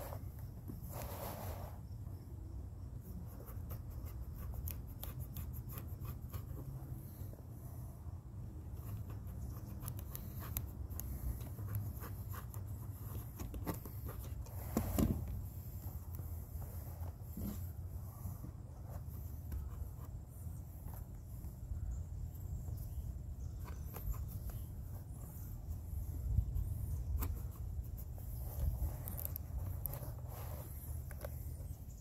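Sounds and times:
steady low hum: 0:00.0 - 0:32.0
scratching and ticking on leather: 0:03.0 - 0:07.4, 0:08.6 - 0:17.6, 0:18.8 - 0:21.6, 0:22.7 - 0:32.0.

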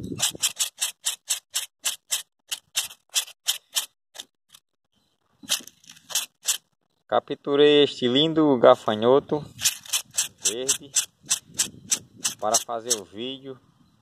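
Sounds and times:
grasshopper rattling wings: 0:00.0 - 0:03.9, 0:09.6 - 0:13.2.

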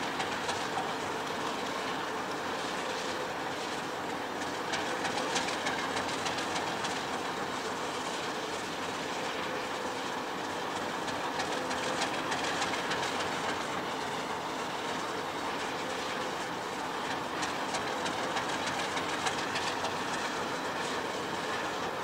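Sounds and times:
train wheels clacking on rails: 0:04.3 - 0:08.0, 0:10.8 - 0:15.0, 0:16.9 - 0:22.0.

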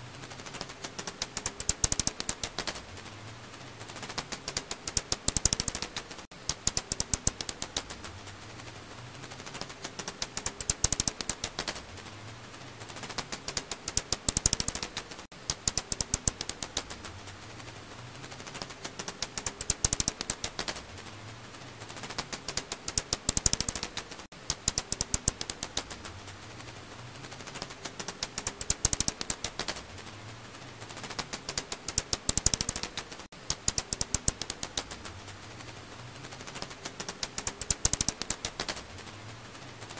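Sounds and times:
steady hiss: 0:00.0 - 0:39.9
bat clicks: 0:00.2 - 0:08.2, 0:09.3 - 0:12.0, 0:12.6 - 0:39.1.

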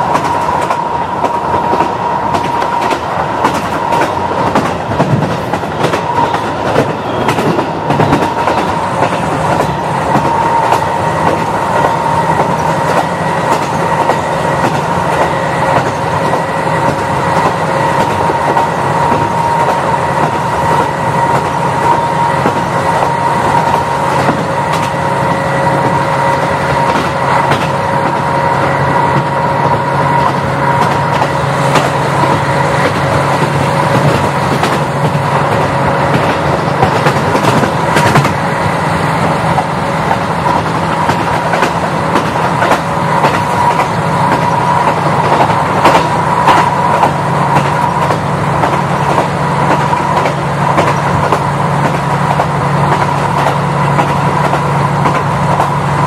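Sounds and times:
diesel railcar engine drone: 0:00.0 - 0:56.0
wheels clicking over rail joints: 0:26.6 - 0:28.2, 0:29.2 - 0:38.4, 0:39.5 - 0:55.8.

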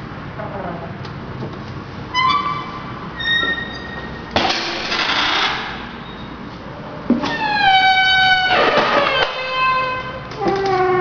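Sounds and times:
pitched squeal: 0:02.1 - 0:04.2, 0:07.2 - 0:11.0.

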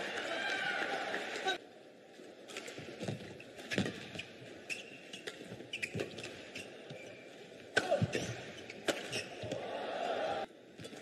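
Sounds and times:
shoe squeaks on court floor: 0:03.7 - 0:07.2, 0:08.1 - 0:09.5.

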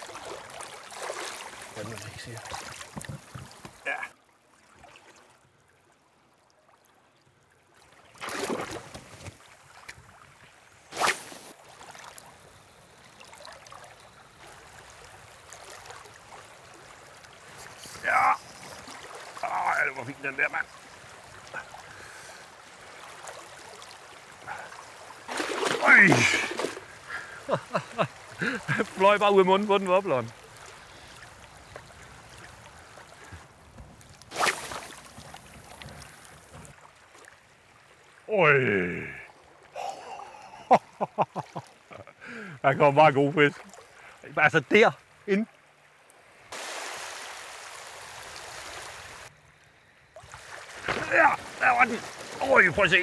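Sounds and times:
loud rush of water: 0:00.0 - 0:04.1, 0:17.4 - 0:30.3, 0:46.5 - 0:49.3, 0:50.2 - 0:53.0
seawater lapping: 0:00.0 - 0:38.6, 0:39.3 - 0:53.0
faint water splashes: 0:00.0 - 0:53.0
shallow water rippling and trickling: 0:00.0 - 0:53.0
wind: 0:00.0 - 0:53.0.

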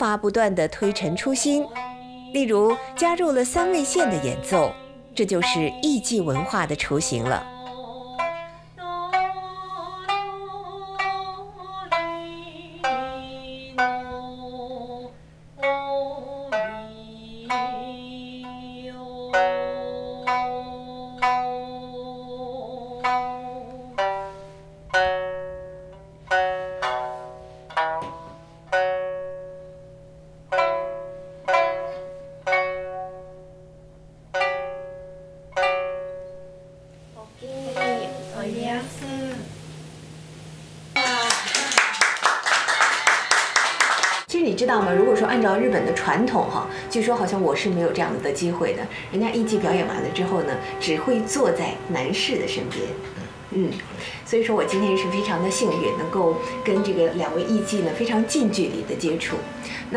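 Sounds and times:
shamisen plucked: 0:00.0 - 0:59.9
long gliding sung notes: 0:34.7 - 0:41.1, 0:44.4 - 0:59.9.

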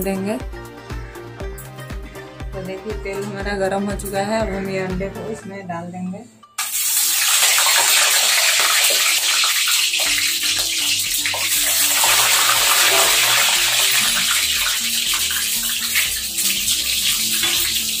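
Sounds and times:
eggs sizzling in hot oil: 0:06.6 - 0:18.0.

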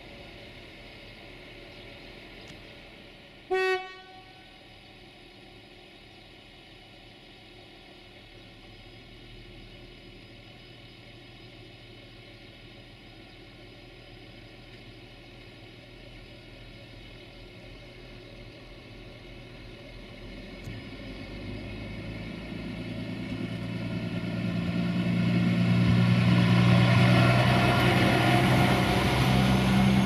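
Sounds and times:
railcar engine running: 0:00.0 - 0:30.0
train horn toot: 0:03.5 - 0:04.6.

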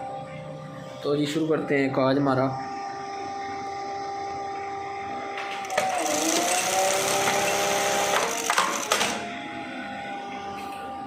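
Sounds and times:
sewing machine motor hum: 0:05.4 - 0:10.3.

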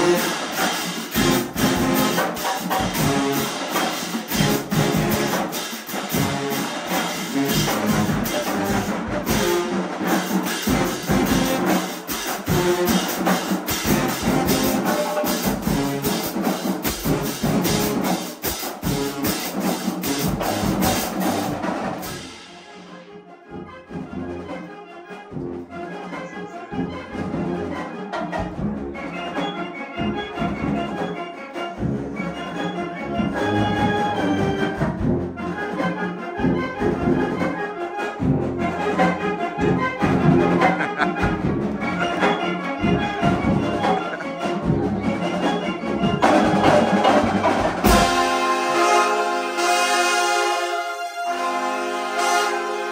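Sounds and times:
marching band playing: 0:00.0 - 0:52.9.

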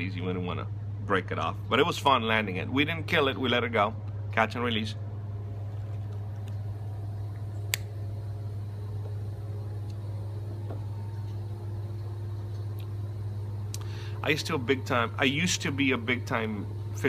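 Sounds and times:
air conditioning units droning: 0:00.0 - 0:17.0.

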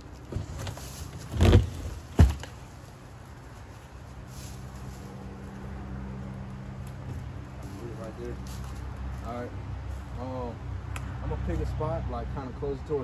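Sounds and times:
heavy wooden thud: 0:01.4 - 0:02.5.

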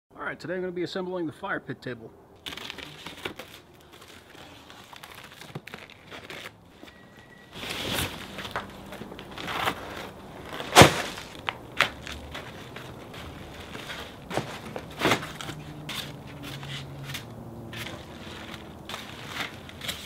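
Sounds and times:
cardboard scraping and rustling: 0:02.4 - 0:20.0
cardboard box thumping: 0:09.4 - 0:12.5.

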